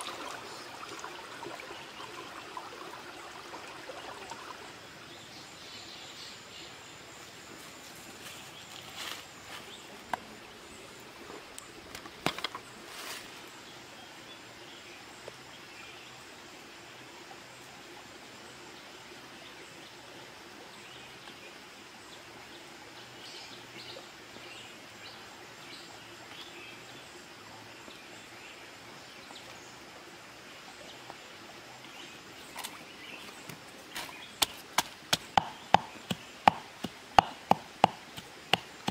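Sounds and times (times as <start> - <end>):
stream rushing over rocks: 0.0 - 5.6, 26.5 - 38.9
sharp knocks and taps: 34.4 - 38.9.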